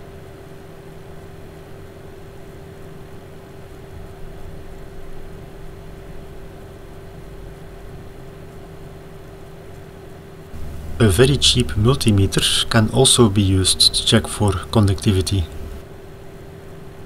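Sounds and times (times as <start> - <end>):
electrical hum: 10.0 - 16.0
low rumble: 10.6 - 13.0.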